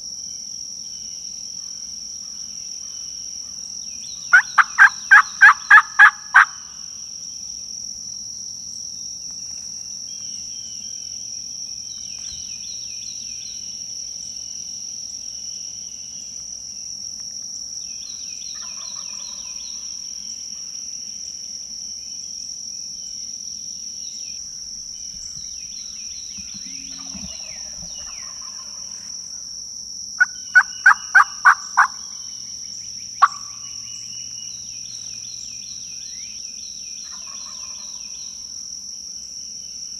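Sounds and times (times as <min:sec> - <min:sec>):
high insect hum: 0:00.0 - 0:39.9
wild turkey calling: 0:04.3 - 0:06.6, 0:18.5 - 0:19.6, 0:24.5 - 0:29.1, 0:30.2 - 0:32.2, 0:33.2 - 0:33.8, 0:37.0 - 0:38.1
songbirds chirping: 0:22.0 - 0:29.2.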